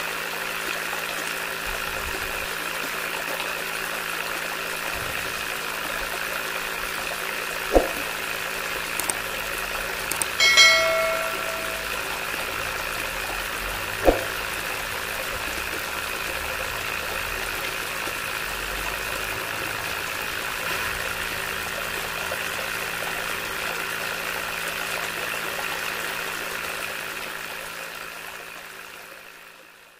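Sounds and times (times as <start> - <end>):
sharp click: 9.0 - 9.2, 10.1 - 12.0, 14.0 - 14.4.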